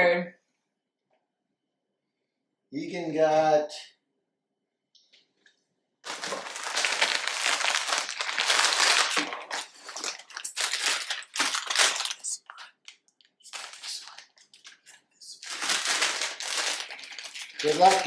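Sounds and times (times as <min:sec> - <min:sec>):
plastic package crinkling: 0:06.0 - 0:18.0.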